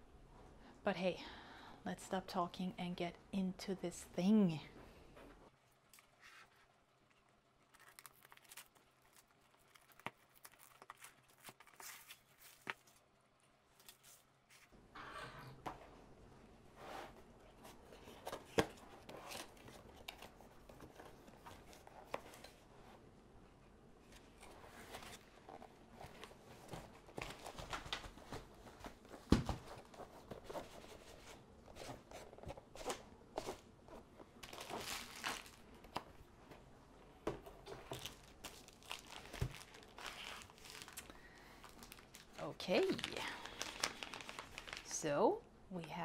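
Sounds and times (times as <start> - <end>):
cardboard and plastic rustling: 5.3 - 13.0, 16.7 - 22.9, 24.0 - 45.0.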